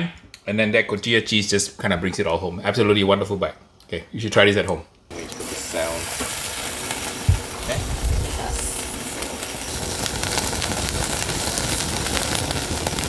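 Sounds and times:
steak sizzling on a grill: 5.1s - 13.0s
fat crackling in coals: 5.2s - 13.0s.

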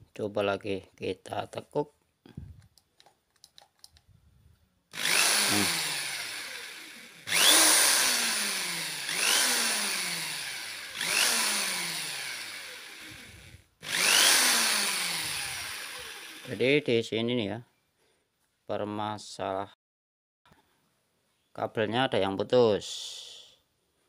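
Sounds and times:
electric drill motor whining: 4.9s - 16.6s.

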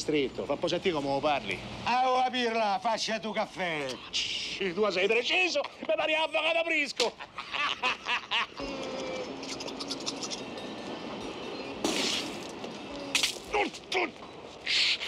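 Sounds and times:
street noise hum: 0.0s - 15.0s
men laughing: 5.3s - 6.3s, 7.0s - 10.1s
falling vocal sounds: 8.6s - 10.0s
sharp exhaled puff: 14.6s - 15.0s.

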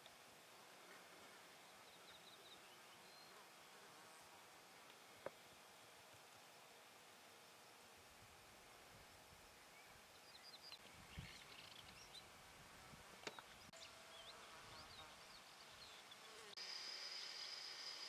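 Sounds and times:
small birds chirping: 1.6s - 3.4s, 9.6s - 12.3s
high-pitched insect buzz: 13.8s - 18.0s.

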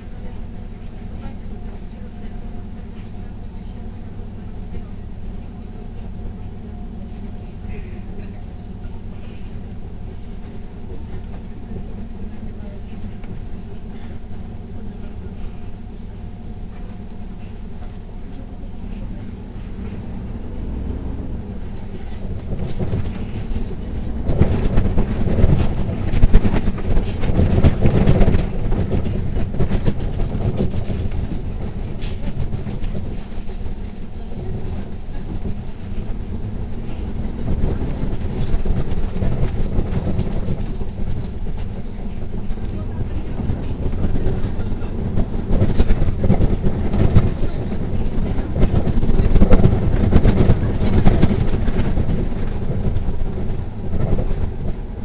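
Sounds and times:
bus low rumble: 0.0s - 55.0s
bus fittings rattling: 21.4s - 55.0s.

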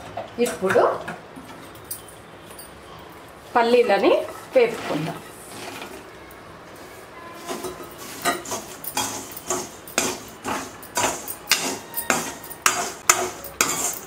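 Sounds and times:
metal ladle scraping a pan: 3.7s - 6.1s, 7.0s - 14.0s.

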